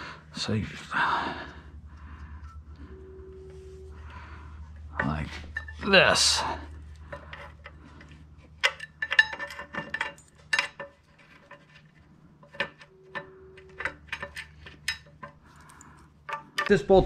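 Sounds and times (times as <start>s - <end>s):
metal bolts clinking: 4.9s - 17.0s.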